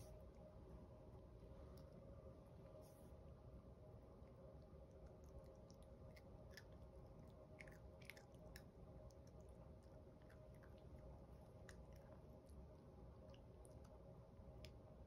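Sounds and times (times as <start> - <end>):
low room hum: 0.0 - 15.0
puppy crunching kibble: 4.2 - 14.8.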